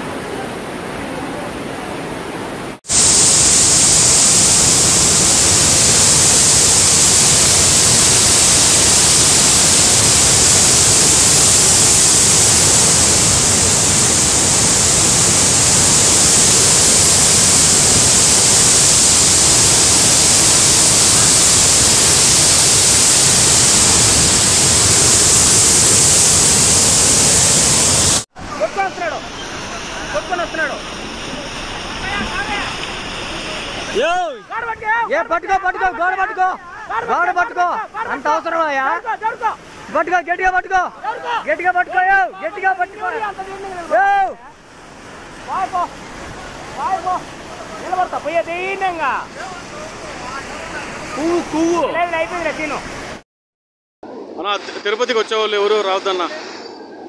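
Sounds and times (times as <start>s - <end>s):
water rushing: 0.0s - 53.2s, 54.1s - 57.0s.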